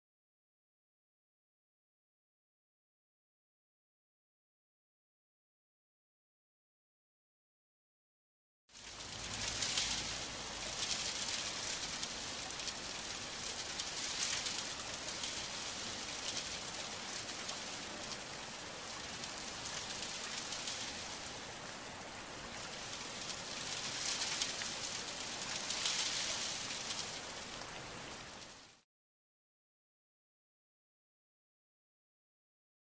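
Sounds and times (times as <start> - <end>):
steady rain falling: 8.7 - 28.8.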